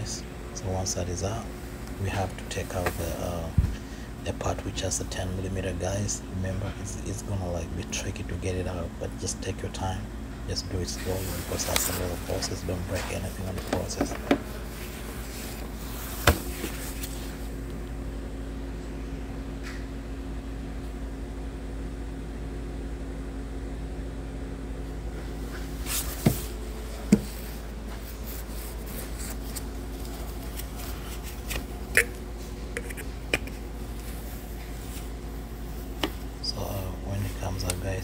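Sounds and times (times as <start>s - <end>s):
steady background hum: 0.0s - 38.0s.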